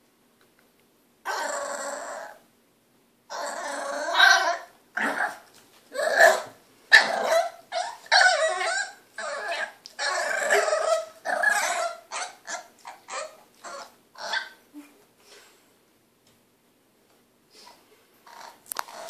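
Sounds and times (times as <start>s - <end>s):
puppy barking and growling: 1.2s - 2.4s, 3.3s - 14.6s.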